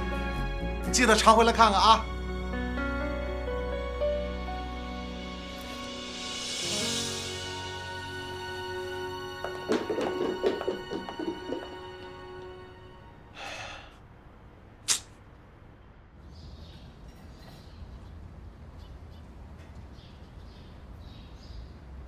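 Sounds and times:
soundtrack music: 0.0 - 13.4
faint low outdoor rumble: 12.4 - 22.0
sharp click: 14.9 - 15.1.

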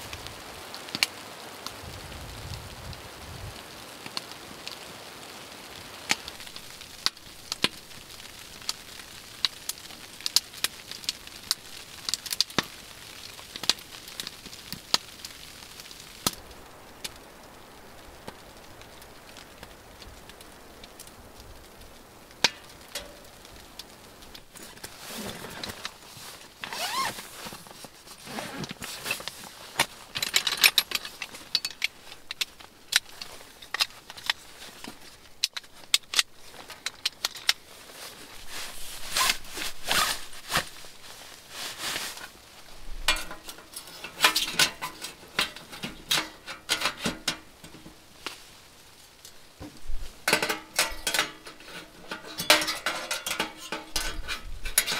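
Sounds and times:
handling rustles and clinks: 22.4 - 23.5, 24.2 - 54.9.

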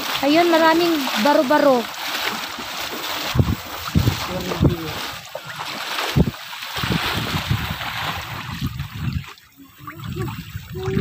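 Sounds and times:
water splashing along boat hull: 0.0 - 11.0
wind buffeting microphone: 3.1 - 5.3, 6.0 - 11.0.

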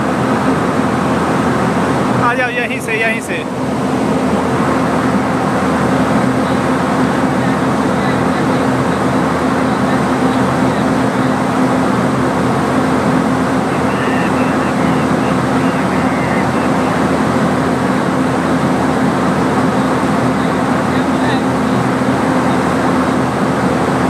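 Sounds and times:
locomotive running noise: 0.0 - 24.0.

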